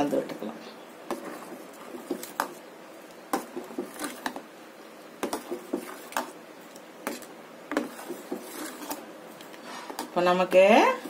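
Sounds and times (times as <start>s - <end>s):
ladle scraping metal pot: 3.4s - 4.4s, 7.1s - 10.2s.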